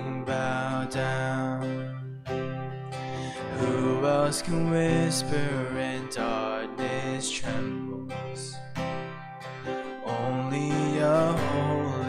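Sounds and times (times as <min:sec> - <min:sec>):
person singing: 0:00.0 - 0:12.0
strummed acoustic guitar: 0:00.0 - 0:12.0.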